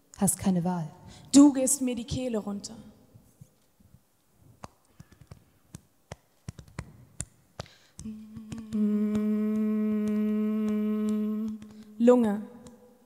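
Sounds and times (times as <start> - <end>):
woman humming a low note: 8.0 - 11.9.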